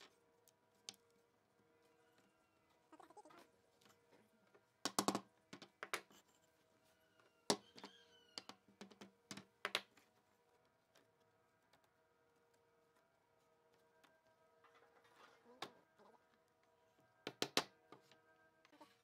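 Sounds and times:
wood clicking on wood: 4.8s - 6.4s, 7.2s - 12.0s, 17.2s - 18.1s.

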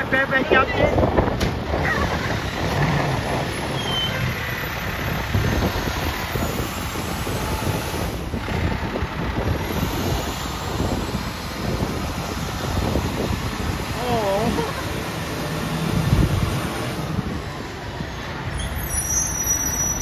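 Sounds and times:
truck diesel engine rumbling: 0.0s - 20.0s.

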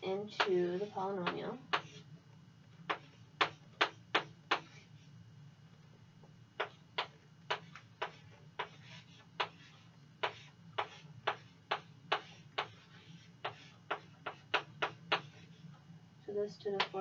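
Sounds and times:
chalk tapping on a blackboard: 0.4s - 2.0s, 2.9s - 4.9s, 6.6s - 15.6s.

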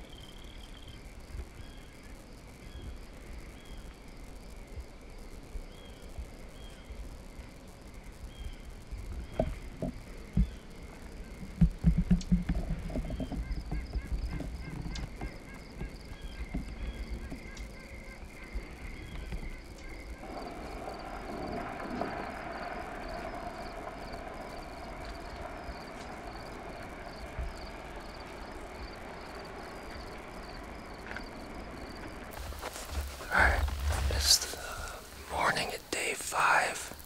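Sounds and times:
insect chirping faintly: 0.0s - 37.0s
low wind rumble: 0.0s - 37.0s
broad rushing noise: 31.4s - 35.6s.

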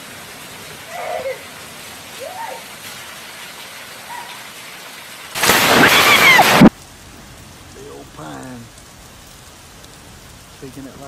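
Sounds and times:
heavy rain falling: 0.0s - 11.0s
loud lightning crack: 5.4s - 6.8s.

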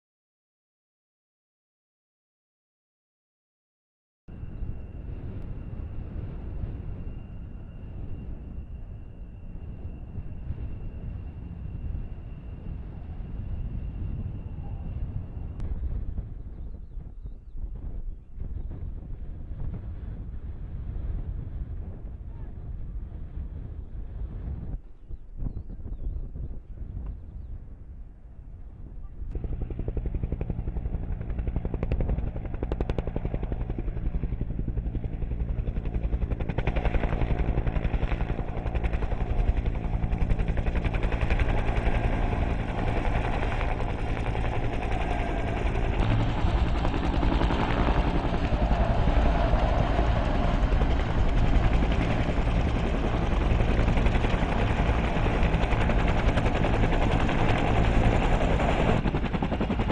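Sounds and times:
turbine engines running: 29.3s - 59.9s
helicopter rotor blade slap: 35.6s - 59.9s.

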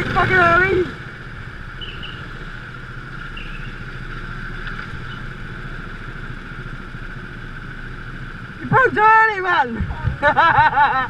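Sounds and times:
go-kart engines running: 0.0s - 11.0s.

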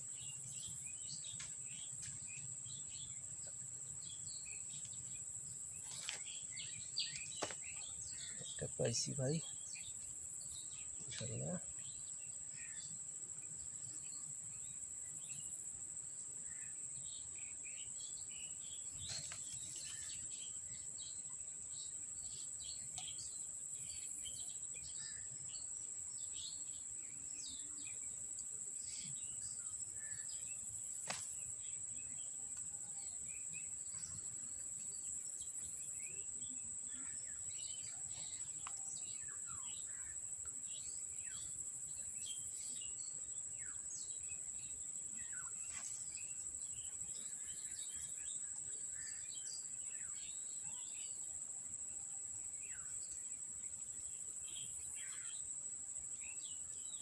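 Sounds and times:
bird chirps: 0.0s - 13.0s
insects droning: 0.0s - 57.0s.

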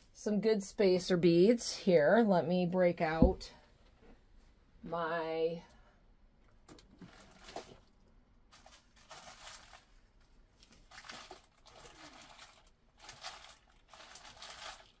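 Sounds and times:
packets crinkling and rustling: 6.8s - 15.0s.

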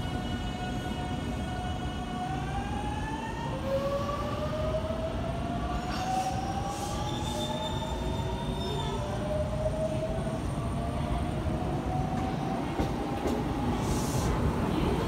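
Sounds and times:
train wheels rumbling on rail: 5.7s - 15.0s.

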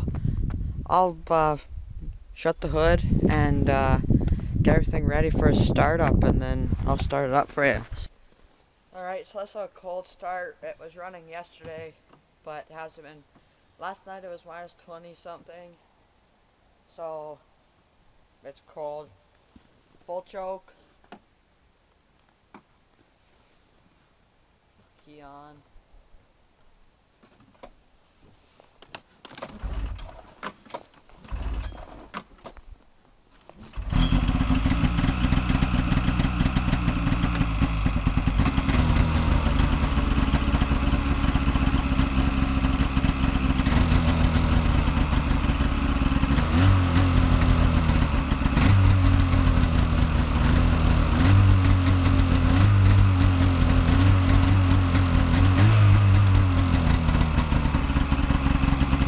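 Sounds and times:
starter cord pulls: 29.2s - 32.6s, 37.1s - 37.6s
snowmobile engine idling: 33.7s - 59.0s.

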